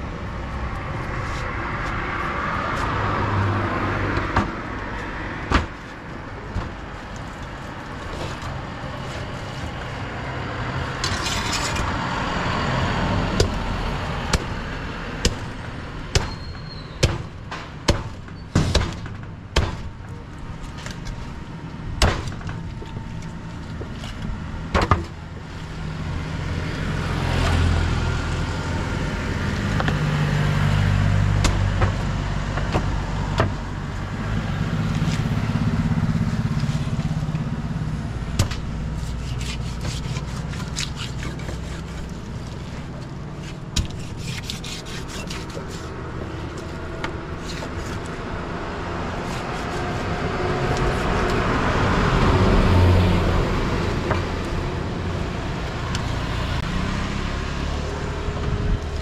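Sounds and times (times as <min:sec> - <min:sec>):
road traffic: 0:00.0 - 0:59.0
cleaver chopping on cutting block: 0:16.1 - 0:16.4, 0:17.0 - 0:19.0
vehicle engine rising: 0:25.3 - 0:39.0.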